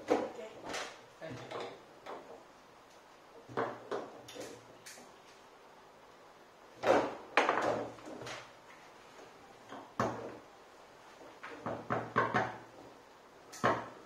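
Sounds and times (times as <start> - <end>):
foosball rods clacking: 0.0 - 2.5, 6.8 - 8.5.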